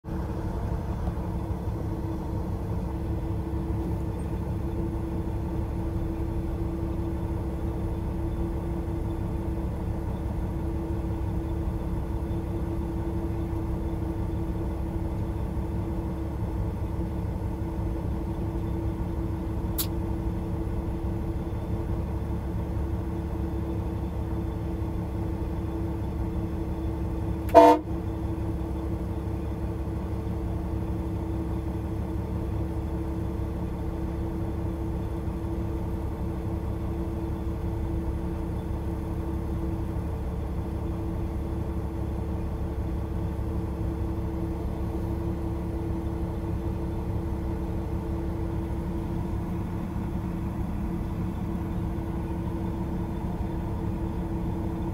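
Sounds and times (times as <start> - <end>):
truck engine droning: 0.0 - 54.9
truck horn toot: 27.5 - 28.0.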